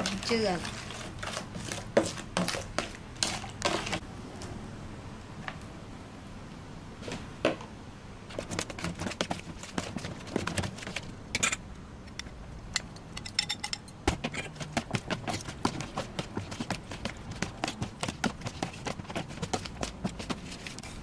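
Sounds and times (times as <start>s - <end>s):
metal spoon scraping plastic basin: 0.0s - 4.0s.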